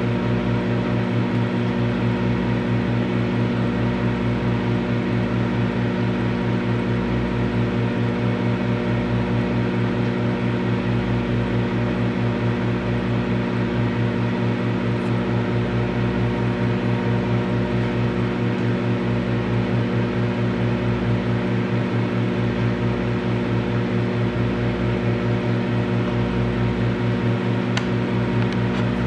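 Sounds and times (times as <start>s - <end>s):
microwave oven humming: 0.0s - 29.0s
whirring fan: 0.0s - 29.0s.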